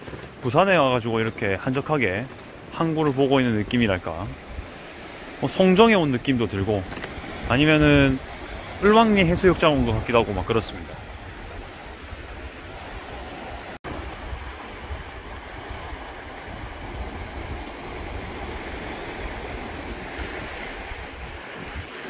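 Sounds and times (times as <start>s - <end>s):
waves breaking over rocks: 0.0s - 22.0s
wind rumbling on microphone: 6.7s - 22.0s.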